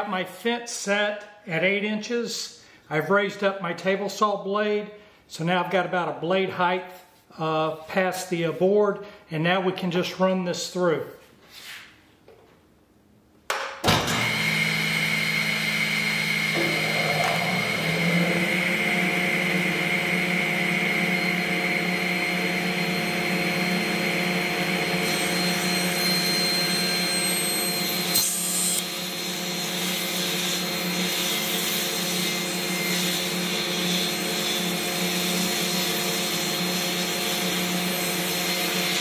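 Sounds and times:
table saw motor hum: 14.0 - 39.0
saw blade cutting wood: 16.5 - 18.8, 24.8 - 39.0.

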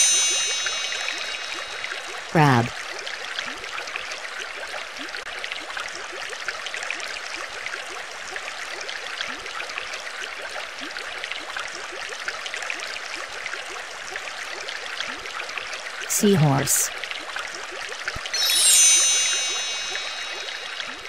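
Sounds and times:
water bubbling and gurgling: 0.0 - 12.2, 17.0 - 21.0.

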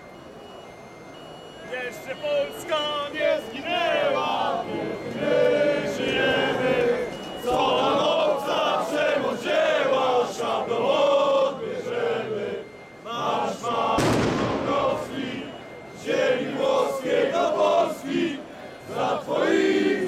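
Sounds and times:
crowd chanting in unison: 2.6 - 20.0
sharp bang: 14.0 - 15.1.

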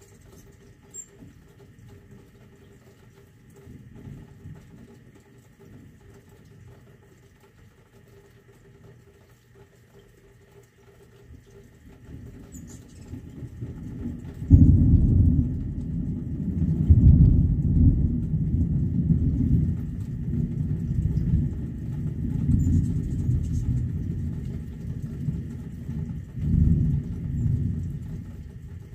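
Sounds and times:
thunder rumbling: 12.0 - 28.9.

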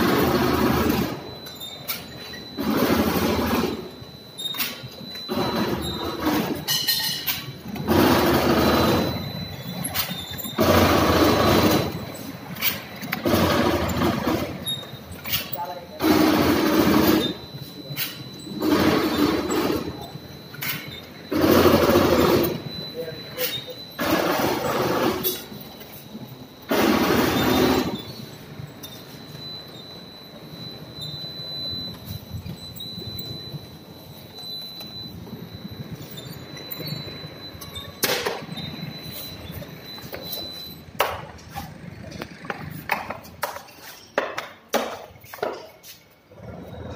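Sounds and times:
steady mechanical noise: 0.0 - 46.9
faint steady high tone: 16.6 - 26.7, 27.5 - 44.2.

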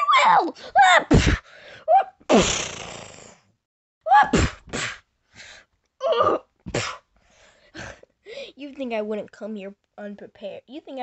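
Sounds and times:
vocal hissing burst: 2.3 - 3.4.

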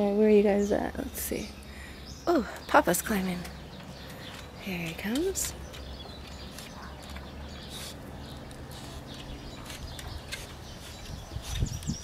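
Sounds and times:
claws scratching on plastic: 5.4 - 12.0.

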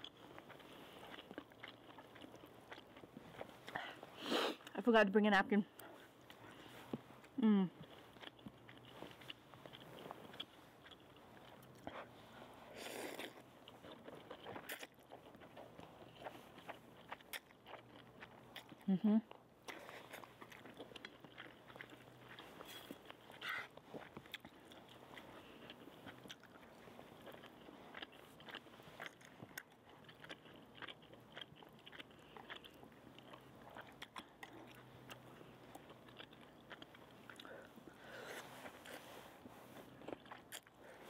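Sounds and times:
person chewing: 0.0 - 4.8, 5.7 - 41.0.

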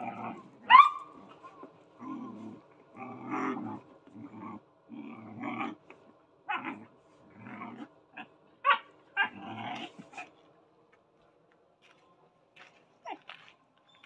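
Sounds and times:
puppies growling: 0.0 - 10.4.

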